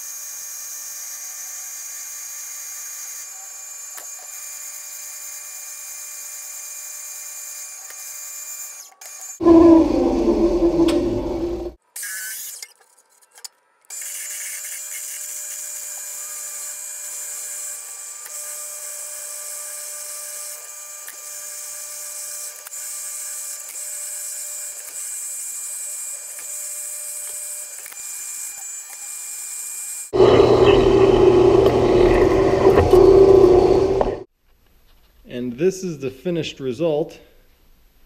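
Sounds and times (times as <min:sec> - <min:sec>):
metal lathe drilling steel: 0:30.2 - 0:34.2.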